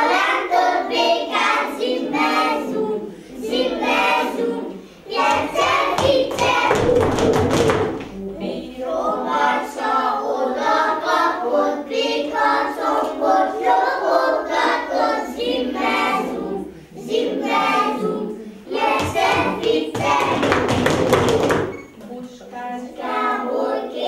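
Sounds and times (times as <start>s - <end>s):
children singing together: 0.0s - 21.8s, 22.6s - 24.0s
children breathing: 16.7s - 17.0s.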